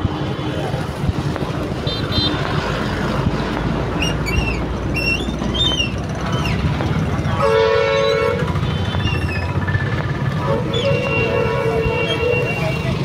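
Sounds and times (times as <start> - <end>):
vehicle engines idling: 0.0 - 13.0
multi-tone vehicle horn: 7.2 - 13.0.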